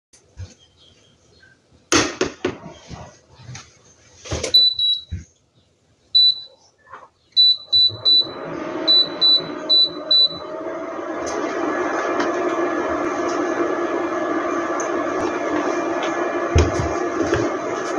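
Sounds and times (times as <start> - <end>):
cooling fan humming: 7.3 - 17.9.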